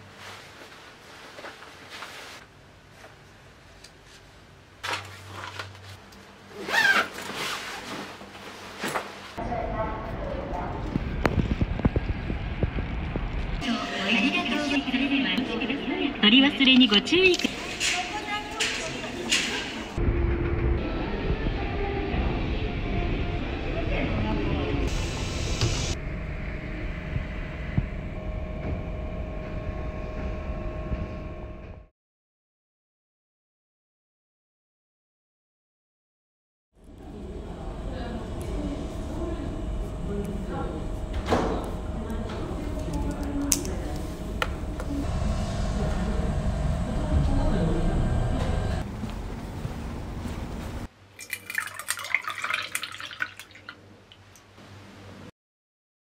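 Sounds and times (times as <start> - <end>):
clothes rustling: 0.0 - 9.4
low background rumble: 9.4 - 17.4, 36.8 - 50.9.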